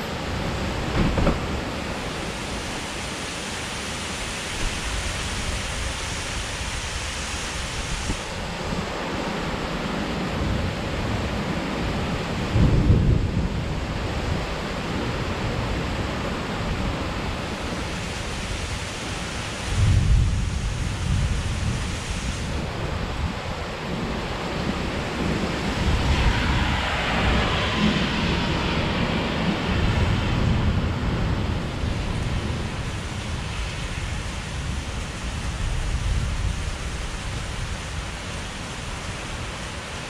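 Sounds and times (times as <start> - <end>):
thunder rumbling: 0.0 - 2.2, 19.6 - 34.9
heavy rain pouring: 0.0 - 40.0.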